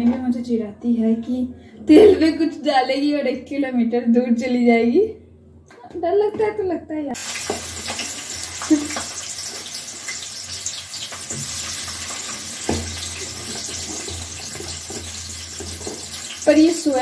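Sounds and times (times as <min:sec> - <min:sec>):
onions sizzling in hot oil: 0:07.2 - 0:17.0.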